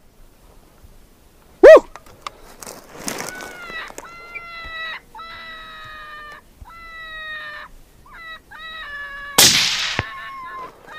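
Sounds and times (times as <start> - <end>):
drawn-out calls: 3.0 - 10.9
rifle shot: 9.4 - 10.2.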